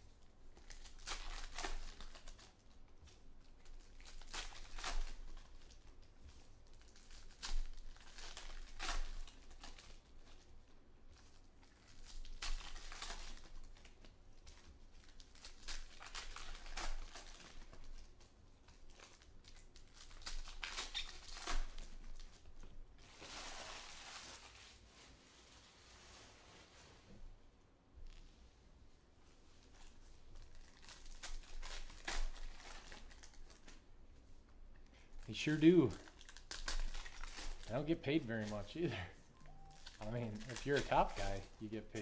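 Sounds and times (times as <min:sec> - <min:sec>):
plastic wrappers crinkling: 0:00.0 - 0:26.2, 0:29.6 - 0:42.0
cards being handled: 0:35.4 - 0:42.0.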